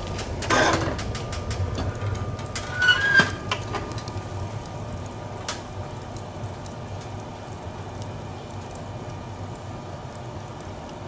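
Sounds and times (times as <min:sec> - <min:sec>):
low hum: 0:00.0 - 0:08.1
wood fire crackling: 0:00.0 - 0:11.0
metal stove door clank: 0:02.6 - 0:04.0.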